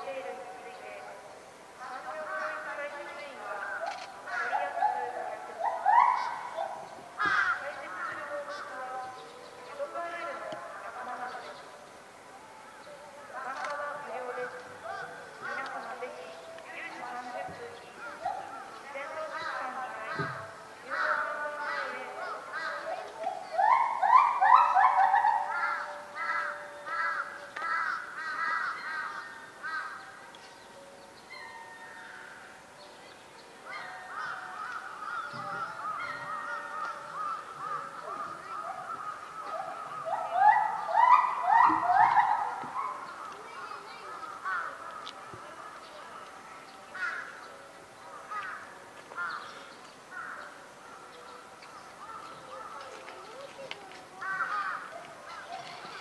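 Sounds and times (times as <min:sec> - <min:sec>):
bird calling: 0:03.8 - 0:09.9, 0:13.5 - 0:30.5, 0:33.6 - 0:46.2.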